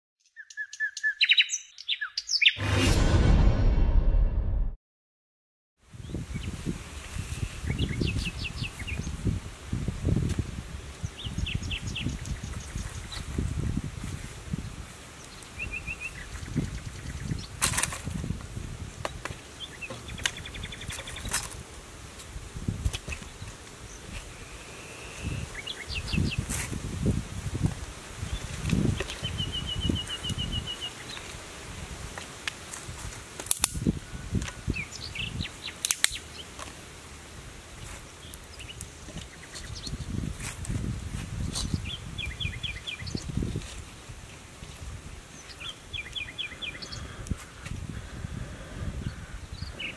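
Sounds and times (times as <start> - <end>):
bird chirps: 0.2 - 2.6
small birds chirping: 0.2 - 2.6, 7.3 - 9.3, 11.0 - 13.3, 14.6 - 17.6, 19.0 - 21.4, 23.1 - 26.5, 28.3 - 31.3, 34.0 - 36.6, 37.8 - 40.3, 41.4 - 43.8, 45.3 - 48.1, 49.0 - 49.9
low rumble: 2.6 - 4.8.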